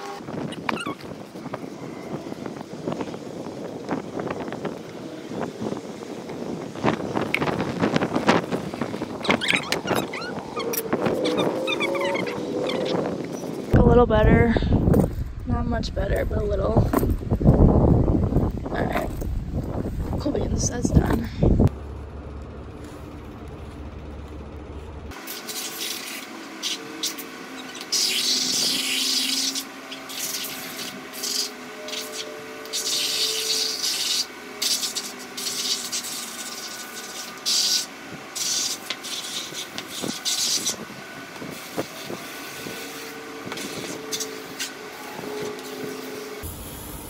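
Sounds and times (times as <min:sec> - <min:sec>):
hose nozzle spraying water: 0:25.1 - 0:44.8.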